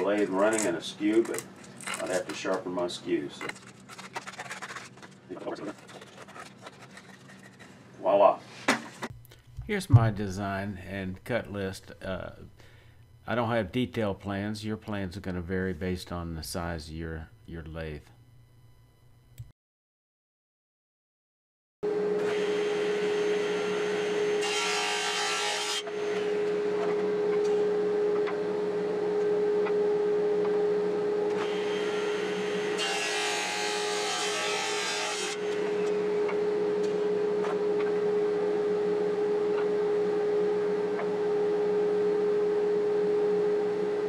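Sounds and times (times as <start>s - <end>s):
table saw whining: 22.0s - 29.2s, 30.8s - 41.4s
saw cutting wood: 22.2s - 27.0s, 31.3s - 36.4s.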